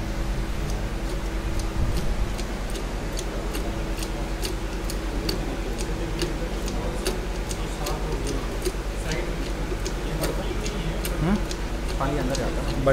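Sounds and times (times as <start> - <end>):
machinery hum: 0.0 - 12.9.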